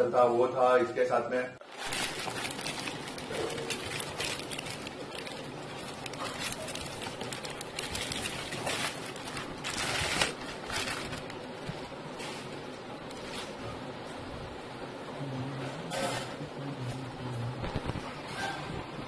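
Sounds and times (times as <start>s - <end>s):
plastic bag crinkling: 1.6s - 12.0s.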